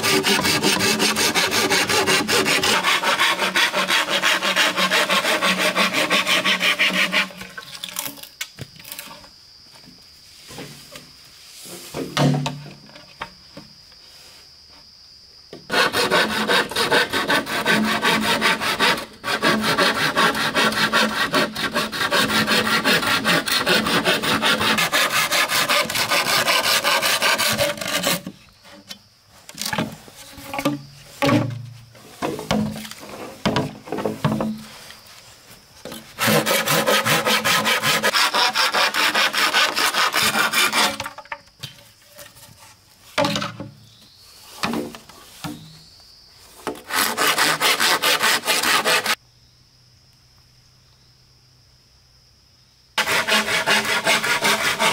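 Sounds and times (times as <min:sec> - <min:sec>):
hand saw cutting bamboo: 0:00.0 - 0:07.5, 0:15.7 - 0:28.4, 0:36.2 - 0:41.2, 0:46.8 - 0:49.2, 0:53.0 - 0:54.9.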